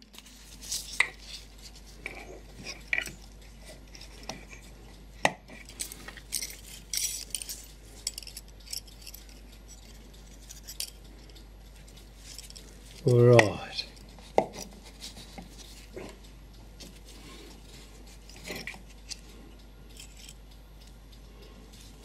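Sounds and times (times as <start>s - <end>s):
light clicks of clock parts: 0.0s - 22.0s
small metallic clinks: 2.0s - 14.8s, 18.0s - 21.6s.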